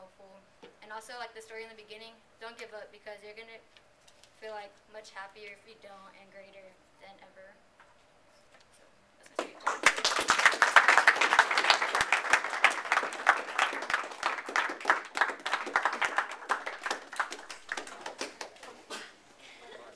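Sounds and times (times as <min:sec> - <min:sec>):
audience clapping: 0:09.3 - 0:18.9.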